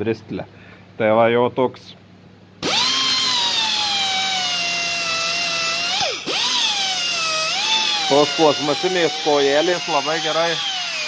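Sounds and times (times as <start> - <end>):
power tool whining: 2.6 - 11.0.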